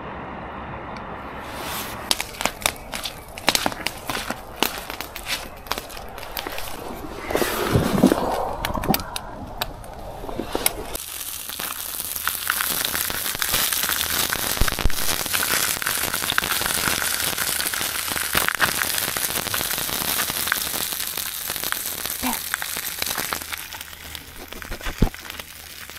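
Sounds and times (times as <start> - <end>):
wavering whine: 0.0 - 11.0
steady hiss: 1.3 - 25.9
campfire crackling and popping: 1.4 - 25.9.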